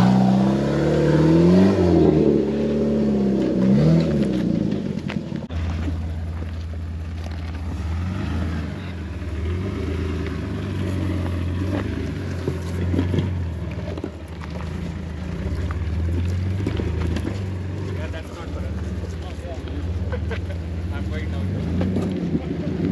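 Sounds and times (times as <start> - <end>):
car engine running low: 0.0 - 22.9.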